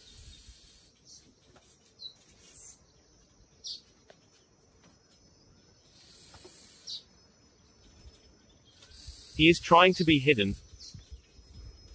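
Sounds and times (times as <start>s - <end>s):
small bird chirping: 0.0s - 11.9s.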